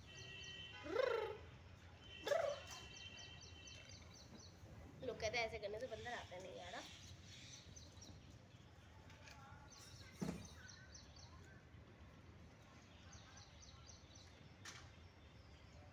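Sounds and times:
faint high bird chirps: 2.0 - 4.6.

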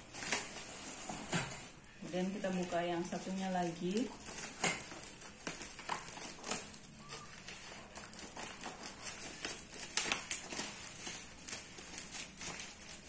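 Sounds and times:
plastic crinkling: 0.0 - 13.0
scissors snipping plastic: 2.6 - 13.0.

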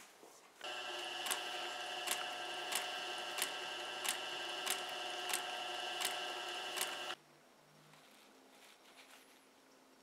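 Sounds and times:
sewing machine motor whine: 0.6 - 7.2
sewing machine stitch clicks: 0.9 - 7.2.

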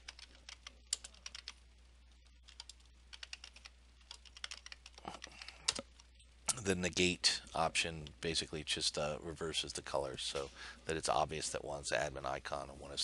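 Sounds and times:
typing on a keyboard: 0.0 - 1.6, 2.5 - 5.8.

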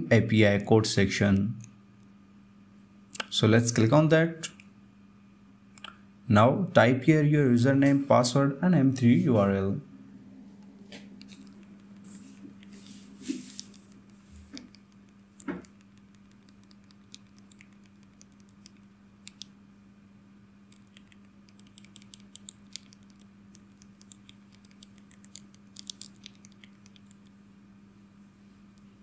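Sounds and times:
steady low hum: 0.0 - 29.0
keys clicking: 20.7 - 27.2.

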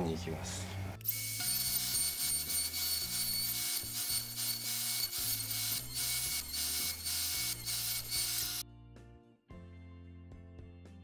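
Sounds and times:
router cutting wood: 1.1 - 8.6.

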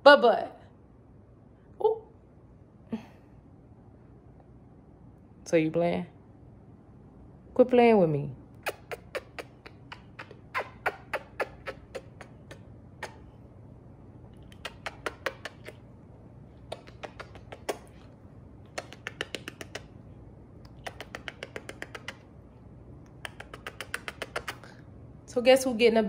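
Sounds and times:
smacking kisses: 8.5 - 13.5, 14.2 - 22.4, 23.0 - 24.9.

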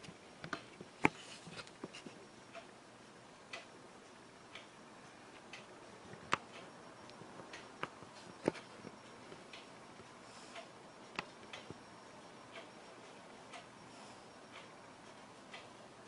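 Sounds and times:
faint ticking: 2.2 - 16.0.

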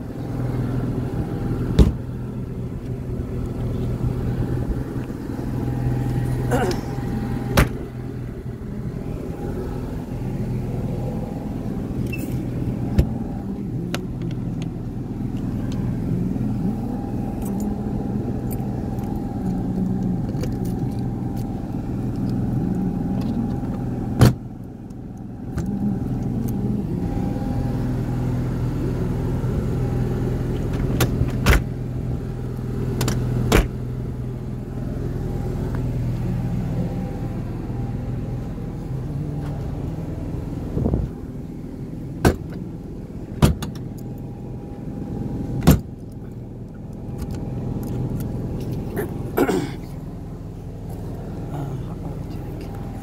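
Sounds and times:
engine idling: 0.0 - 53.0.

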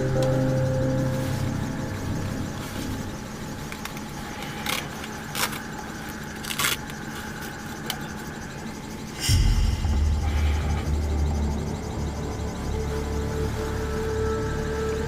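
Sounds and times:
faint steady whine: 0.0 - 15.0.

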